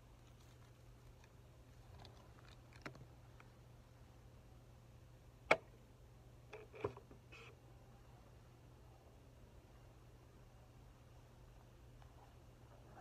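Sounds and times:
straw clicks and rustles: 0.0 - 3.6.

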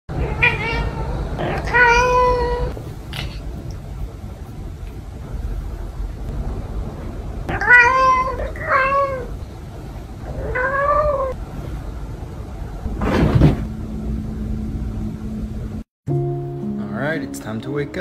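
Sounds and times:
cat meowing: 0.1 - 3.4, 7.5 - 9.3, 10.2 - 11.4.

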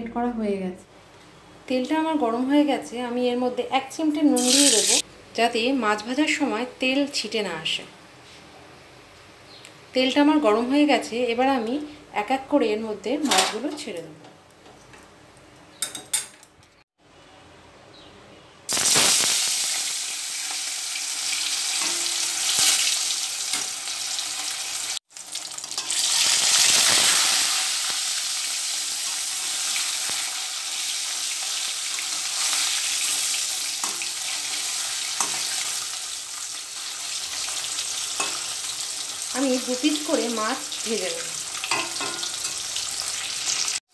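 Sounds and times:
fish sizzling in hot oil: 4.3 - 5.0, 18.7 - 43.9.

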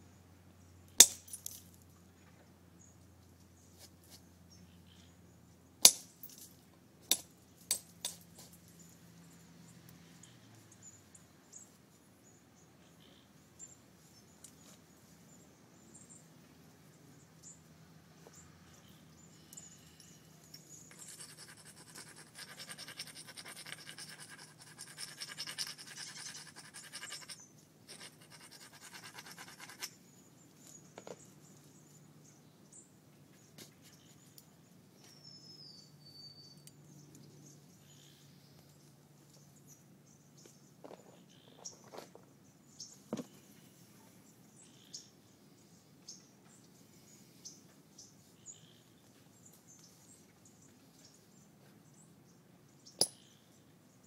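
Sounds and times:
hand tools scraping stone: 20.9 - 30.0.

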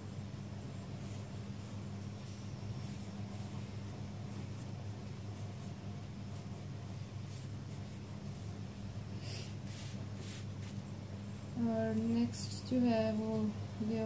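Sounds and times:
steady low hum: 0.0 - 14.0
marker strokes on paper: 1.0 - 8.6, 9.2 - 10.8.

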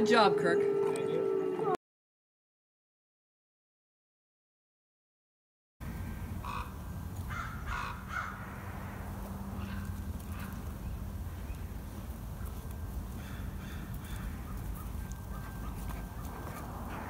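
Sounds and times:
steady low rumble: 5.8 - 17.0
harsh animal calls: 6.4 - 10.7.

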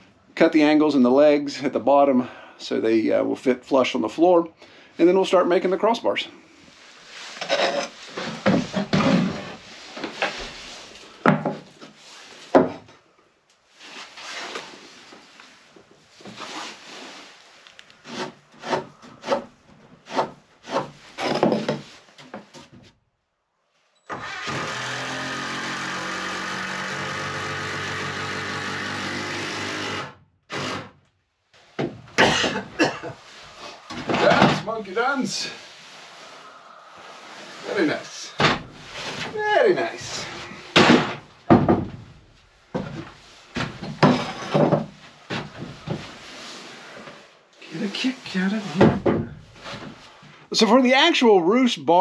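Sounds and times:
hand saw rasping on wood: 18.0 - 21.0, 24.6 - 30.0
small power tool motor: 24.1 - 30.8
knocks on wood: 40.8 - 42.0.

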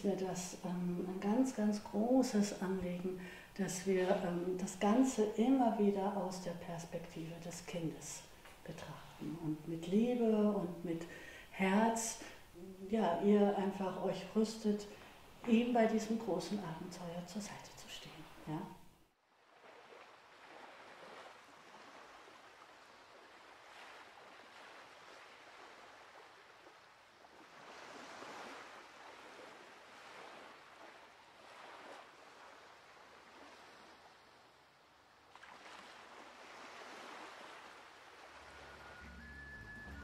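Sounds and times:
small waves washing onto sand: 19.3 - 39.0.

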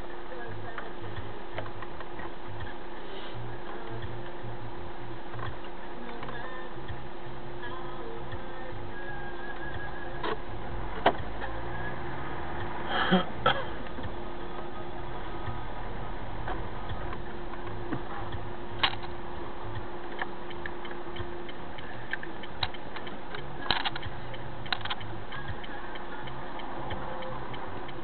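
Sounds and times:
car cabin hum and hiss: 0.0 - 28.0
sharp clicks and knocks: 1.5 - 2.7, 16.4 - 28.0.

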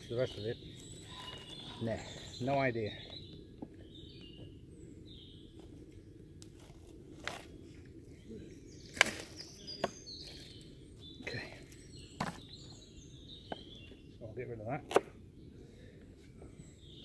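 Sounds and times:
birds chirping: 0.0 - 17.0.

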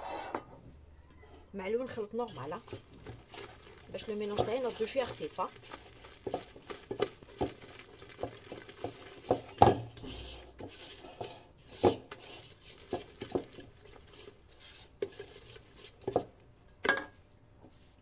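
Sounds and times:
whisk scraping metal bowl: 2.0 - 16.4
whisk clanking on bowl: 2.2 - 16.4.

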